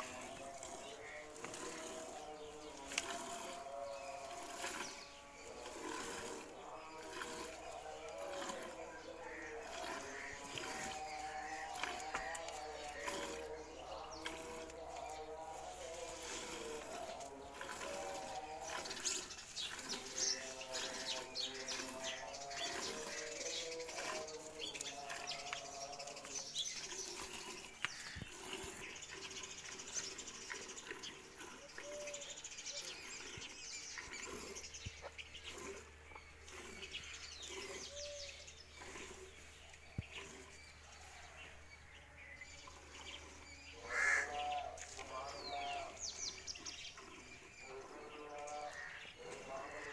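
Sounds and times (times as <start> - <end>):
small birds chirping: 0.0 - 49.9
faint pitched bird calls: 43.8 - 46.4.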